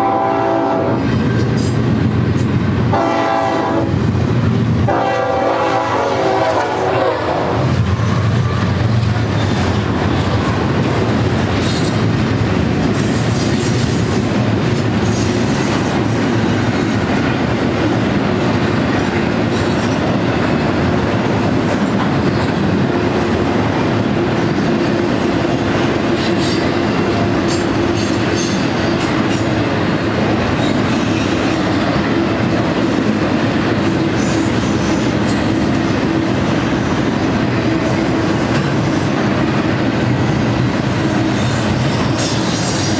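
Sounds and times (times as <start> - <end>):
train wheels rumbling on rail: 0.0 - 42.9.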